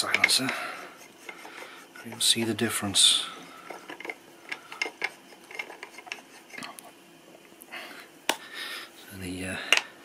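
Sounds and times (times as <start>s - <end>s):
metal clicks and scrapes: 0.0s - 0.5s, 3.6s - 6.9s.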